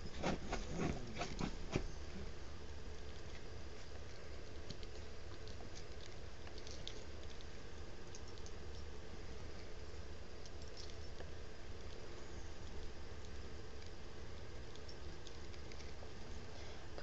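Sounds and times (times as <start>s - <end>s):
dog claws scratching fabric: 0.0s - 2.3s.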